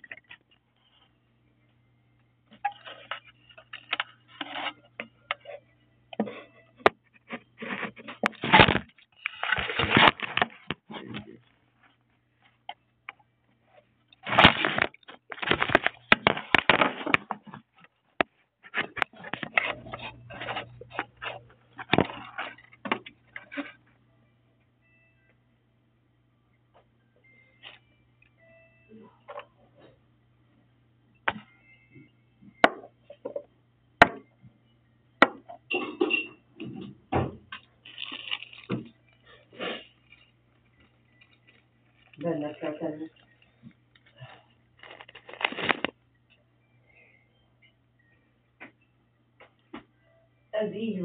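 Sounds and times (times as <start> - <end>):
faint low hum: 0.0 - 51.0
crackling and rustling: 7.0 - 12.5, 13.6 - 23.9, 37.5 - 46.0.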